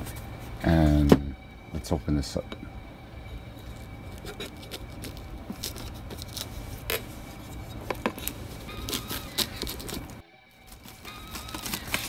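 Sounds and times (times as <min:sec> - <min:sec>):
blade slicing plastic shrink wrap: 0:08.1 - 0:10.2, 0:10.9 - 0:12.0.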